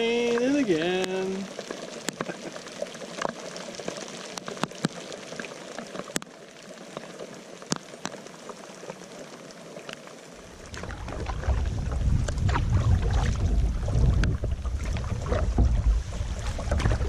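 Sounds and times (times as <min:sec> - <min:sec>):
rain falling on water: 0:00.0 - 0:17.0
wind buffeting microphone: 0:10.7 - 0:17.0.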